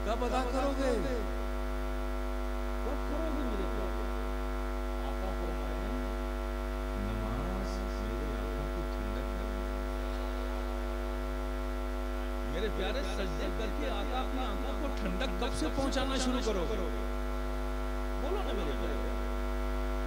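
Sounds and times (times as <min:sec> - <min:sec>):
mains hum from sound system: 0:00.0 - 0:20.0
faint voices: 0:07.0 - 0:09.6.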